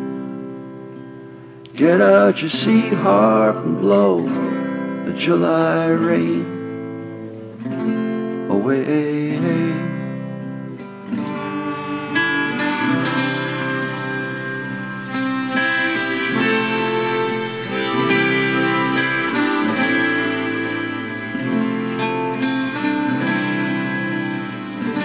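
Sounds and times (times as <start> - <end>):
strummed acoustic guitar: 0.0 - 25.0
harmonica solo: 11.0 - 25.0.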